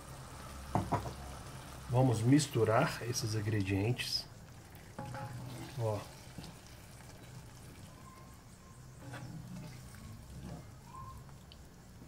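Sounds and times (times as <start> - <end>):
liquid sloshing in a pan: 4.4 - 11.8.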